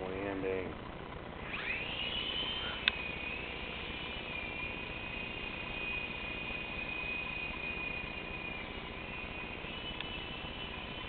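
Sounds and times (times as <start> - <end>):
rc helicopter motor whine: 0.0 - 11.0
sharp click: 2.8 - 3.0, 10.0 - 10.2.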